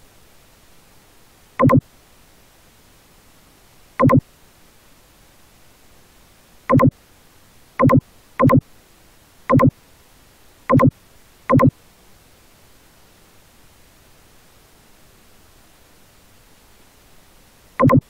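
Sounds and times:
faint steady hiss: 0.0 - 18.0
short loud electronic beeps: 1.6 - 1.8, 4.0 - 4.2, 6.7 - 6.9, 7.8 - 8.6, 9.5 - 9.7, 10.7 - 10.9, 11.5 - 11.7, 17.8 - 18.0.

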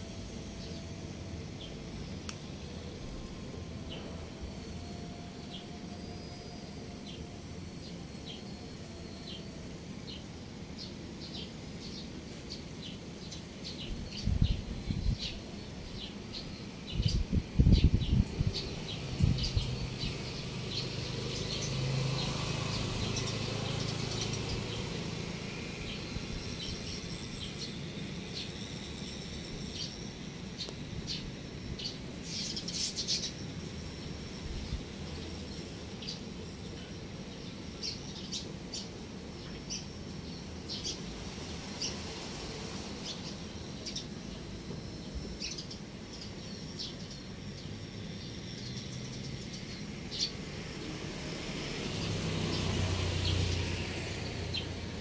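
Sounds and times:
faint low drone: 0.0 - 55.0
birds chirping: 0.3 - 42.1.

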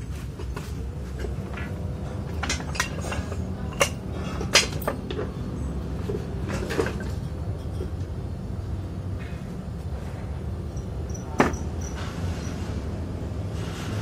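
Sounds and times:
steady low hum: 0.0 - 14.0
steel pieces clanking: 1.3 - 5.3.

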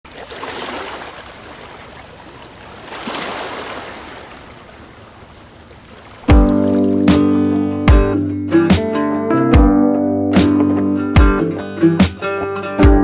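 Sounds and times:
waves washing on a shore: 0.1 - 7.1.

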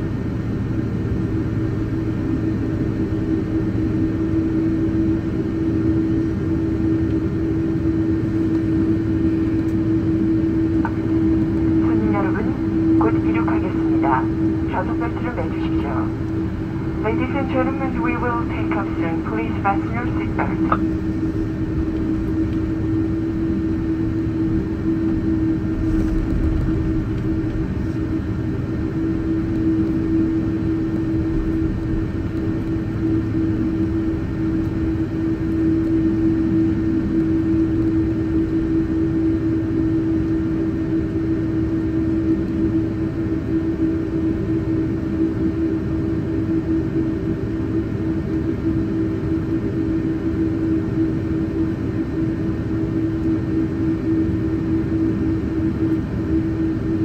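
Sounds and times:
constant hum-like tone: 0.0 - 57.0
jet engines rumbling: 0.2 - 39.9
cabin air noise: 8.8 - 34.8.

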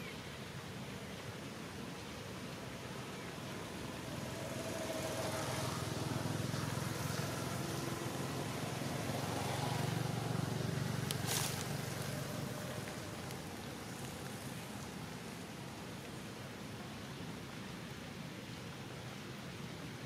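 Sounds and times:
vehicle passing by: 3.3 - 15.1.

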